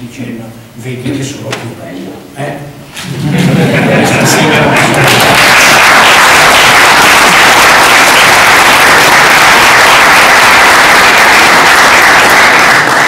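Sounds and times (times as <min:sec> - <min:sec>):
crowd applauding: 0:03.8 - 0:13.0.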